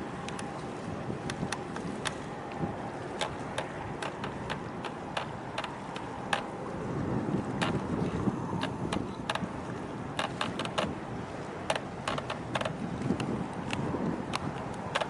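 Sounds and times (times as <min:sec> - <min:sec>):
choppy water: 0:00.0 - 0:15.0
sharp clicks: 0:03.2 - 0:06.5, 0:10.2 - 0:10.9, 0:11.7 - 0:15.0.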